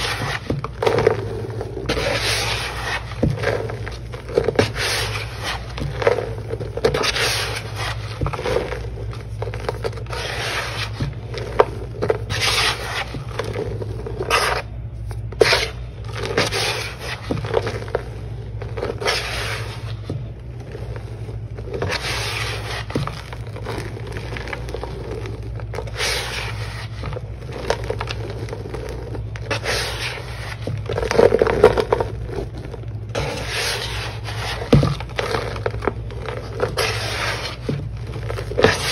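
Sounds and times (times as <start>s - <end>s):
hand swishing through dry powder: 0.0s - 30.6s, 33.2s - 35.6s, 36.2s - 38.9s
fingers scraping plastic tub: 0.0s - 38.9s.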